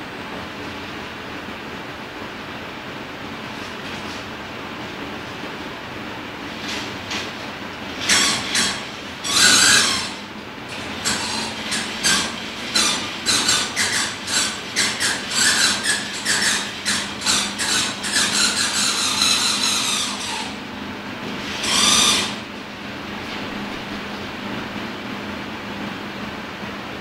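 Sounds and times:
projector machinery hum: 0.0 - 27.0
rubbing and squeaking: 6.5 - 22.5
loud rasp: 7.9 - 20.7, 21.4 - 22.5.

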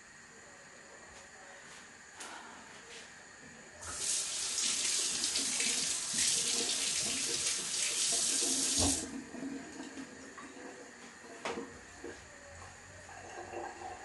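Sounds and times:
tap water running into sink: 3.8 - 10.1.

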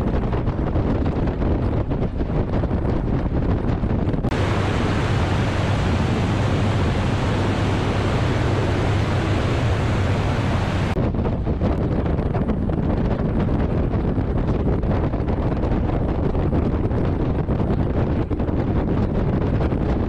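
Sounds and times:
aircraft engine and propeller drone: 0.0 - 15.7
wind rushing over microphone: 0.0 - 20.0.

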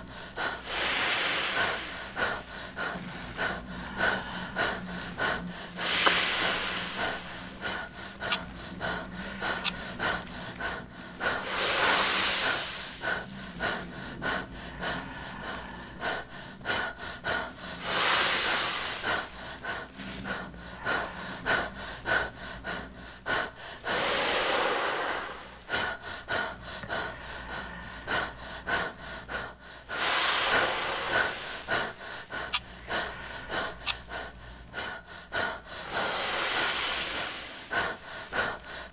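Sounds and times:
plastic rustling and crinkling: 18.9 - 20.7.

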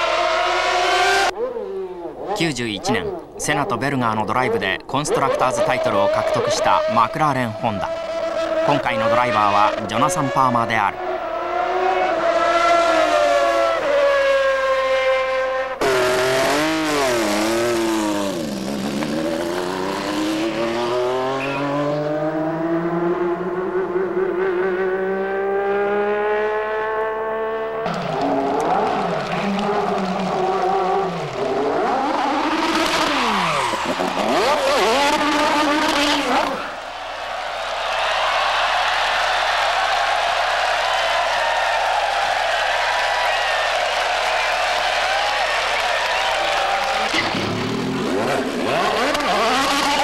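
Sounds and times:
racing car engine revving: 0.0 - 1.3, 5.2 - 36.8, 42.8 - 50.0
racing car engine passing: 5.8 - 36.9, 46.0 - 50.0.

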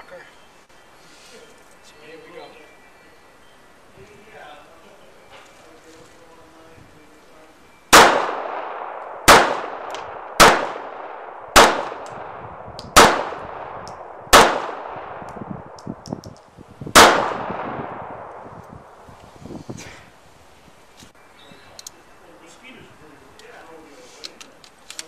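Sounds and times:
pistol shots echoing: 7.9 - 15.9, 16.9 - 18.4.

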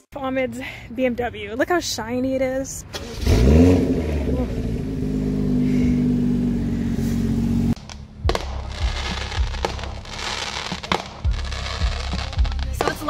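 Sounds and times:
car engine idling: 2.4 - 10.2
fireworks bangs: 7.7 - 13.0
fireworks crackling: 7.7 - 13.0.

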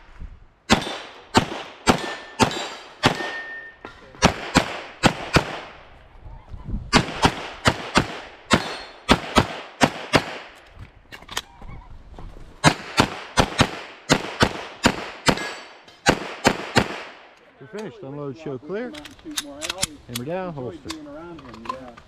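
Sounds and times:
pistol shots: 0.7 - 3.6, 4.2 - 5.8, 6.9 - 10.6, 12.6 - 17.2.

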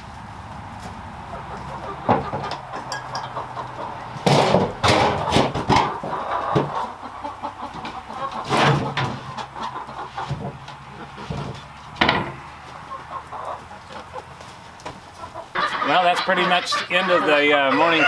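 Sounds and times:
hens clucking: 0.0 - 18.0.

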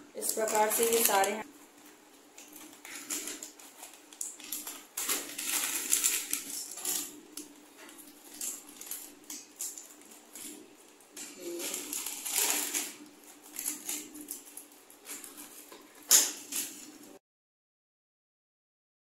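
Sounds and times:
plastic packet crinkling: 0.2 - 17.2
scissors snipping plastic: 11.2 - 17.0.

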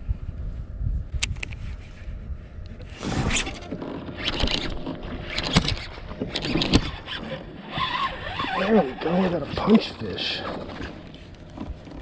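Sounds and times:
fishing reel handling rustle: 2.7 - 9.3.

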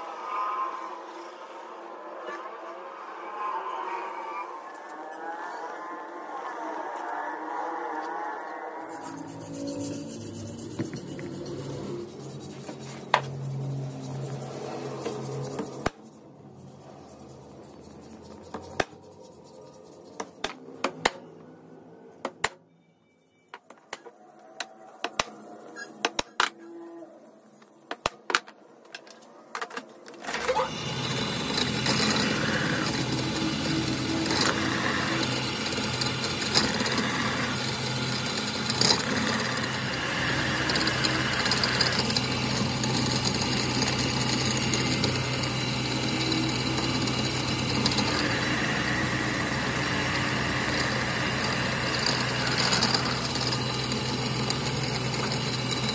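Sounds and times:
drill press drilling metal: 30.3 - 55.9.

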